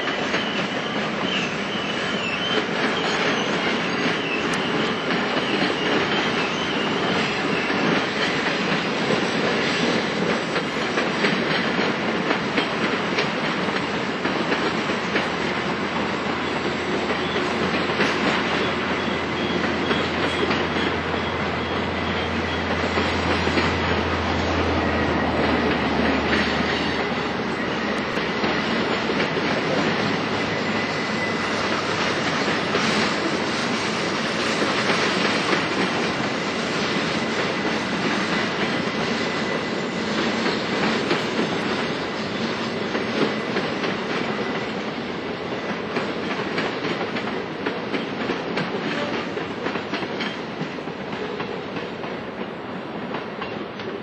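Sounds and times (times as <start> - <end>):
train wheels clattering on rails: 0.0 - 54.0
faint wheel squeal: 0.1 - 8.9, 15.9 - 35.6.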